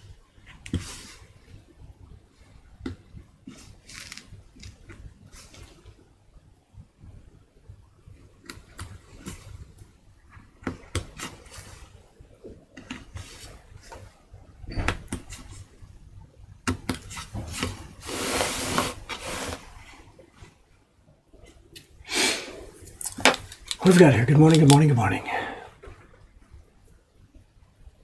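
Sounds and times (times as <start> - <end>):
rubbing noise: 17.1 - 20.1.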